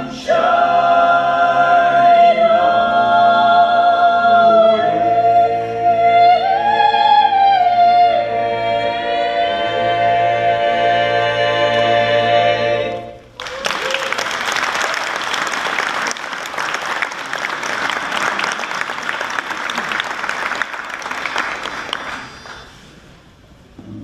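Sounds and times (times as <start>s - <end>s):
choir singing held chord: 0.0s - 13.2s
audience applause: 13.4s - 22.8s.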